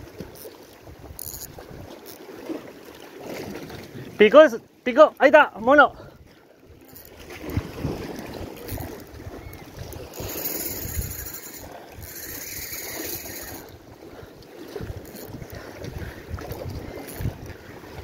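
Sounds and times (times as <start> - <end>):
wind buffeting microphone: 0.0 - 2.4, 5.8 - 18.0
sea surf washing against rocks: 6.7 - 18.0.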